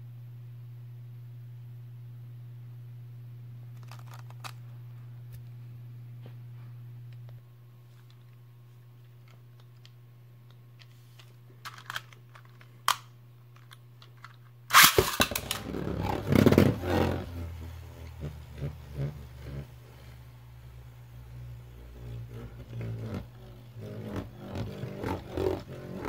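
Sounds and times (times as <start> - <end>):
plastic clicks: 3.8 - 4.6, 9.2 - 15.6
top scraping and rattling on plastic: 3.8 - 4.6, 14.2 - 20.1, 21.8 - 26.0
spinning top launched: 14.7 - 17.5.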